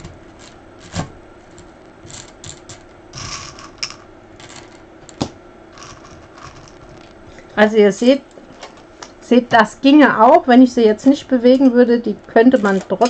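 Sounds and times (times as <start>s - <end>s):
small stones clinking in a cup: 1.5s - 4.8s, 5.8s - 7.2s.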